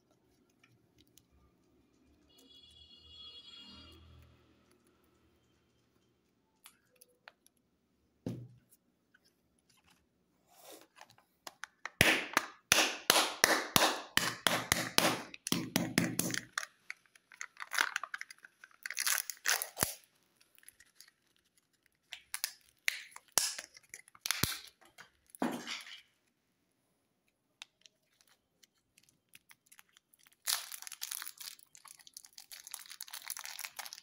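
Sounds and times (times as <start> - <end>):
soft knock: 8.2 - 8.6
foil wrapper tearing and crinkling: 16.2 - 25.4, 27.7 - 34.0.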